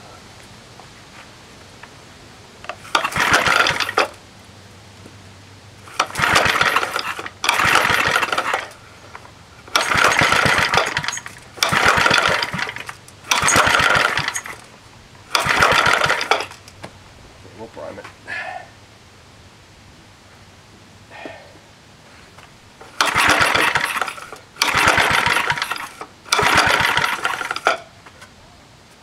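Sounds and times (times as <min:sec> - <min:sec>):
engine cranking by pull rope: 0:02.7 - 0:04.2, 0:05.8 - 0:16.8, 0:22.8 - 0:27.9.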